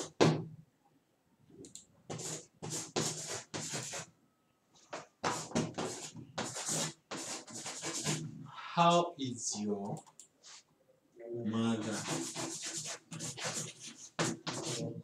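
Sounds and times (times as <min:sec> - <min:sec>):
chalk scratching on a blackboard: 0:02.1 - 0:04.1, 0:04.9 - 0:08.3, 0:11.6 - 0:15.0.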